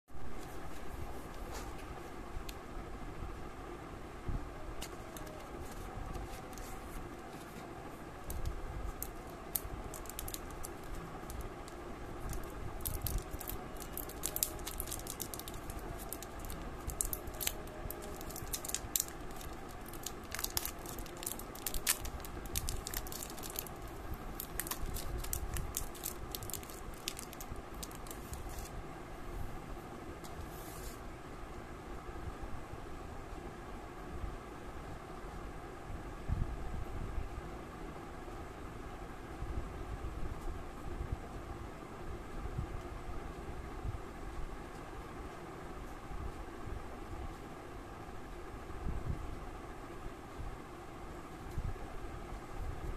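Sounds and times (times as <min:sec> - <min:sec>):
steady low hum: 0:00.1 - 0:52.9
plastic wrapper crinkling: 0:04.8 - 0:07.6, 0:08.2 - 0:28.7.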